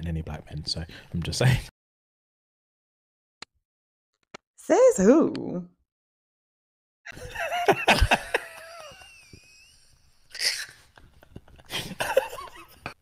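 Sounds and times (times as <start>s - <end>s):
men laughing hard: 7.1s - 13.0s.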